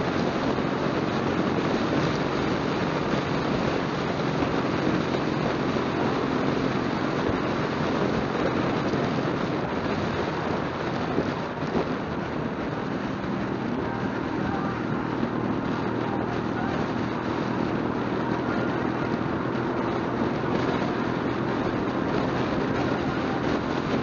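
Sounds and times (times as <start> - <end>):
motorcycle engine cruising: 0.0 - 24.0
road noise: 0.0 - 24.0
wind noise: 0.0 - 24.0.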